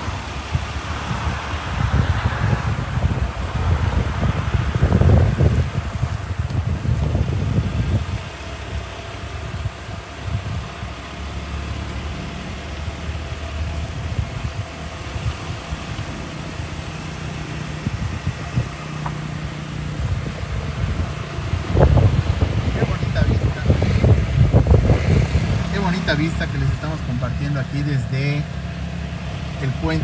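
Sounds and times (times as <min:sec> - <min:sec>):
car engine idling: 0:00.0 - 0:30.0.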